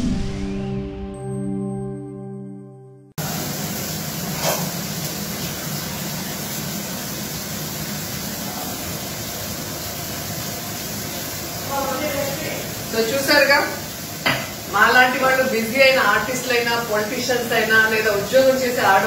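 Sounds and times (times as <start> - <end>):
fish sizzling in oil: 3.2 - 19.0
utensil knock: 14.2 - 14.6.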